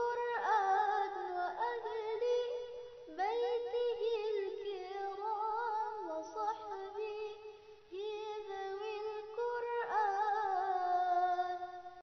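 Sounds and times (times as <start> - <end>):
high singing voice: 0.0 - 12.0.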